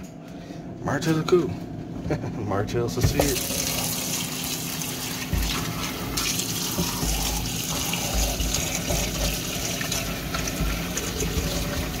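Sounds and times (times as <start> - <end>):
faucet running into container: 3.2 - 12.0.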